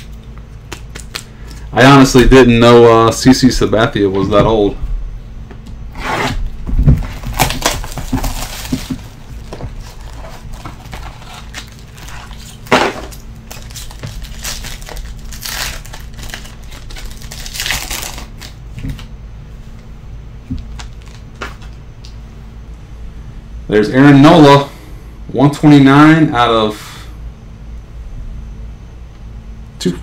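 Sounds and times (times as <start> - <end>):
foil wrapper crinkling and tearing: 7.0 - 19.1, 20.6 - 21.8.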